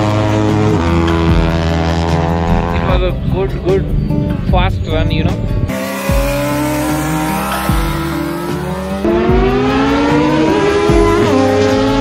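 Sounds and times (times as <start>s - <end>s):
car engine revving hard: 5.7s - 12.0s.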